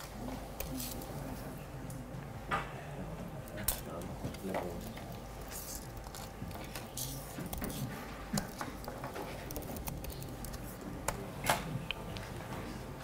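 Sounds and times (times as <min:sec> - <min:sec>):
laptop keyboard typing: 0:04.4 - 0:11.2.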